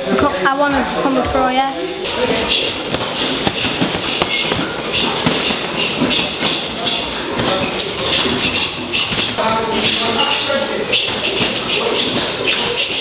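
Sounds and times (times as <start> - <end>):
gloved punches on punching bags: 2.6 - 9.9.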